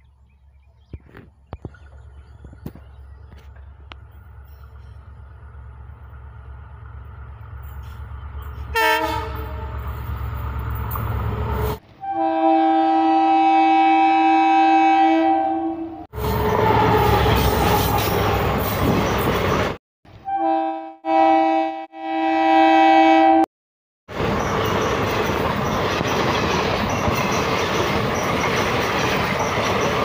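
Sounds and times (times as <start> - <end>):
locomotive rumble: 0.2 - 12.3, 15.9 - 19.8, 24.1 - 30.0
train coaches passing close: 1.3 - 21.4, 24.1 - 30.0
train horn blast: 8.7 - 9.9, 11.5 - 18.4, 20.2 - 23.5.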